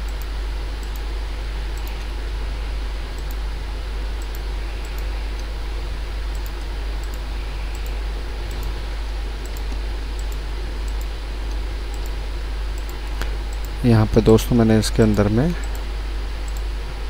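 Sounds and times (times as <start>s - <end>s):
low hum and hiss: 0.0s - 17.0s
computer mouse clicks: 1.8s - 2.1s, 3.1s - 3.4s, 4.2s - 5.5s, 6.3s - 8.8s, 9.4s - 12.2s, 12.8s - 13.8s, 15.6s - 16.7s.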